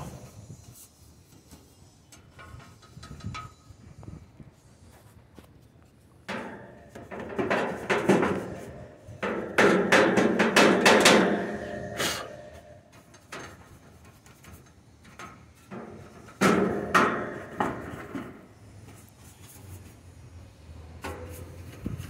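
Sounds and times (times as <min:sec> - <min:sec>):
brush knocking against metal: 0:06.3 - 0:12.6
paintbrush scraping sheet metal: 0:06.4 - 0:13.0.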